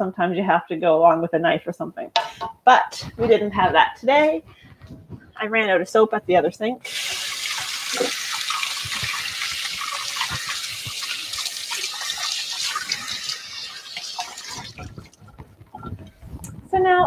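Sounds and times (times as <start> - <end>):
tap running into a sink: 6.9 - 15.4.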